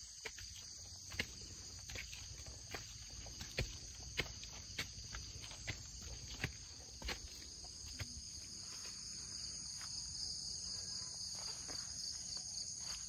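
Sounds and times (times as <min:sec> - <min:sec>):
flip-flop footsteps on stone steps: 0:00.0 - 0:08.8.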